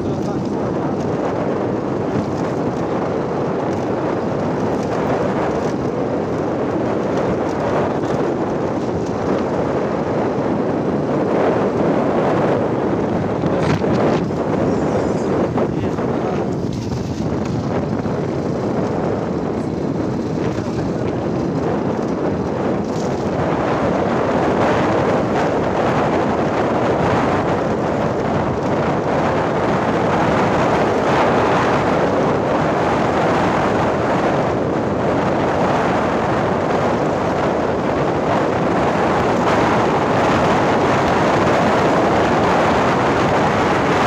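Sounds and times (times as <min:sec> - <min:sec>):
motorcycle on gravel road: 0:00.0 - 0:12.0, 0:12.6 - 0:33.1
vehicle running noise: 0:00.0 - 0:44.0
wind on microphone: 0:00.0 - 0:44.0.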